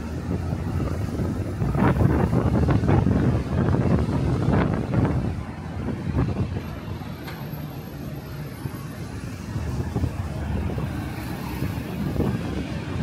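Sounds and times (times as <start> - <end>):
wind buffeting microphone: 0.0 - 7.3, 8.7 - 13.0
cars and buses passing: 0.0 - 13.0.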